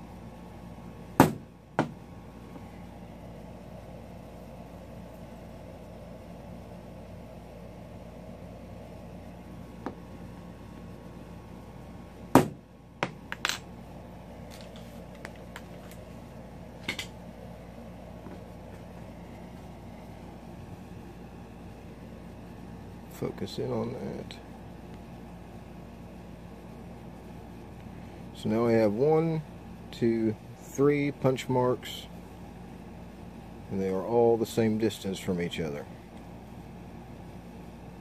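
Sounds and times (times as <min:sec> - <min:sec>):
faint steady hum: 0:00.0 - 0:38.0
hammer striking metal punch: 0:01.2 - 0:02.0.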